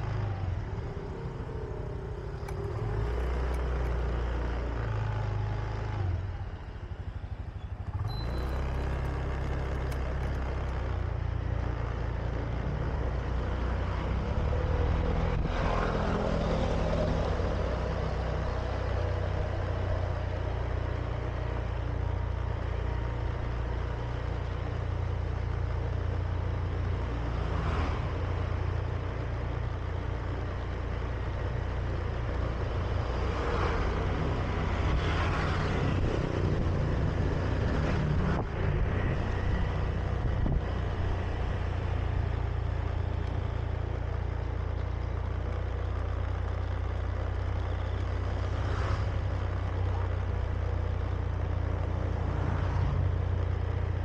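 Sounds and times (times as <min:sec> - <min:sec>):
scooter engine running: 0:00.0 - 0:12.5
tyre and road noise: 0:00.0 - 0:54.0.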